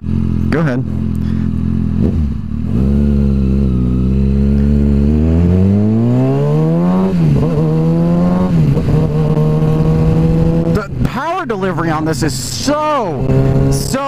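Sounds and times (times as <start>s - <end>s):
motorcycle engine accelerating: 0.0s - 11.0s, 11.8s - 14.0s.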